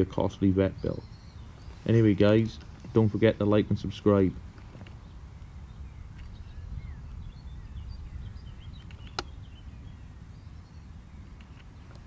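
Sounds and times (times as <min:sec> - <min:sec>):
small birds chirping: 0:00.0 - 0:12.0
wind rumbling on microphone: 0:00.0 - 0:12.0
sharp click: 0:08.8 - 0:09.3.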